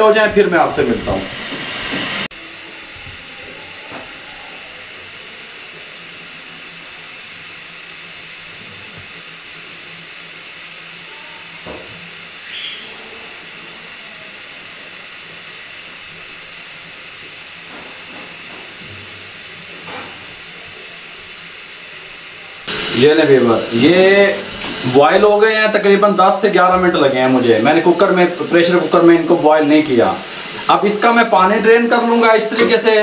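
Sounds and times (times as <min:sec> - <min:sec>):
gas burner and steam hissing: 0:00.0 - 0:33.0.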